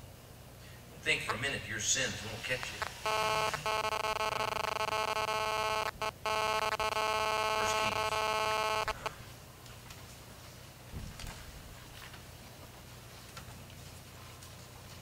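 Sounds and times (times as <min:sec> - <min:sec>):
steady electronic buzz: 0:02.7 - 0:09.1.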